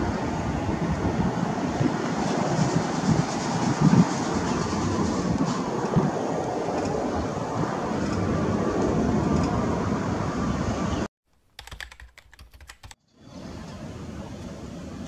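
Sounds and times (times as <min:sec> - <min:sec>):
jet engine roar: 0:00.0 - 0:11.1, 0:13.2 - 0:15.0
typewriter-like clicks: 0:11.5 - 0:13.0.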